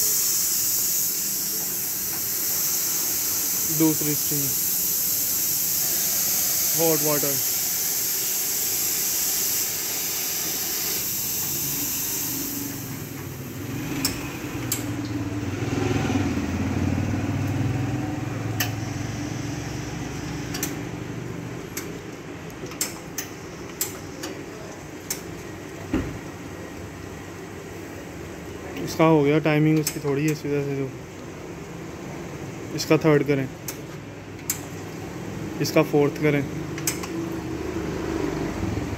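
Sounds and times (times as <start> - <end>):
espresso pump humming: 0.0 - 14.7
hot water outlet hissing: 0.0 - 15.2.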